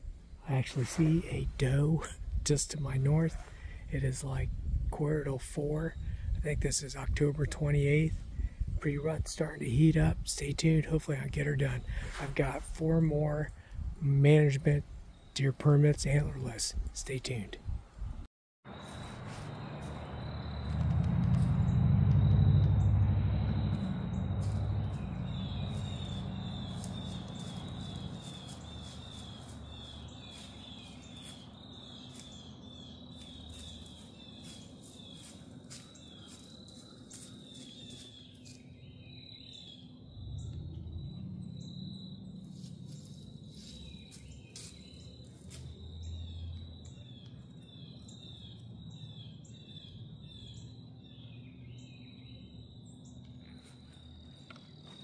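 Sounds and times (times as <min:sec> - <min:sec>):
crickets chirping: 0:18.7 - 0:55.0
low rumble: 0:19.5 - 0:30.2, 0:39.8 - 0:44.1.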